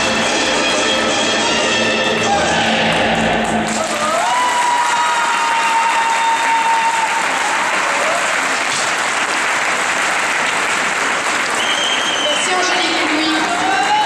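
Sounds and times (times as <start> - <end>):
audience applauding: 3.4 - 14.0.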